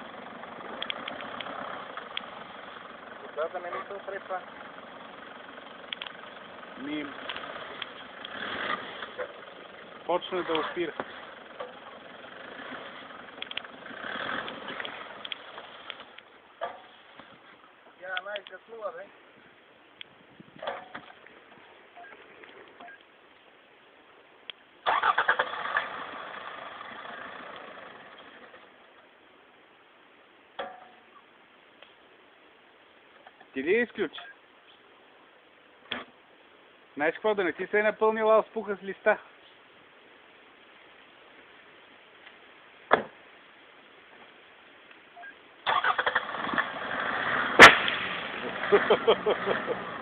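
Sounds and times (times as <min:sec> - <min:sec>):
car engine running: 0:00.0 - 0:16.8
starter motor cranking: 0:24.9 - 0:26.0, 0:45.7 - 0:46.8.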